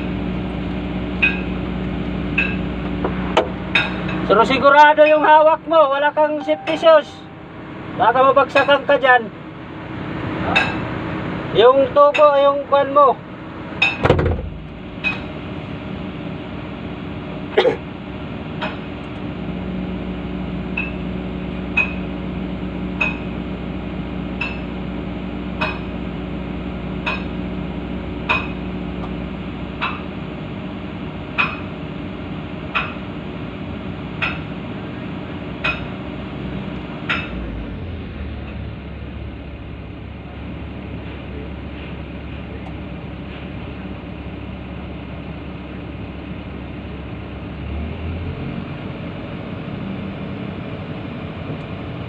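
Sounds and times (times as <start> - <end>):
diesel engine running: 0.0 - 52.0
hammer striking metal: 6.4 - 7.5.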